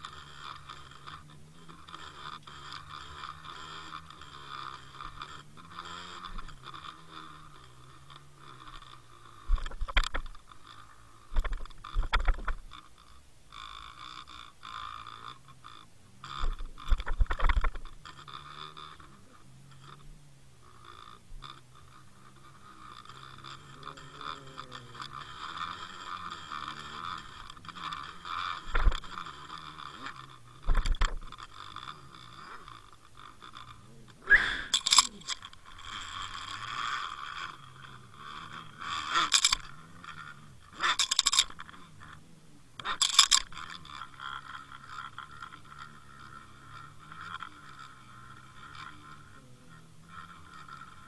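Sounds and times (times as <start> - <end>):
steady whine: 0.0 - 51.0
underwater water noise: 28.7 - 29.0.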